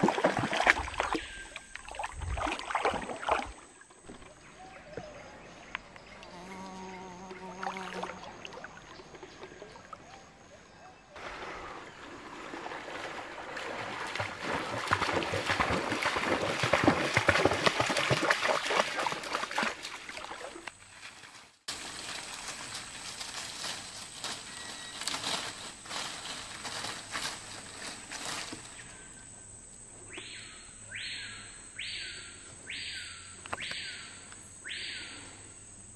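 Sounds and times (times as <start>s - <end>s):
dog splashing through water: 0.0s - 3.7s, 11.2s - 20.7s
faint water sound: 0.0s - 23.8s.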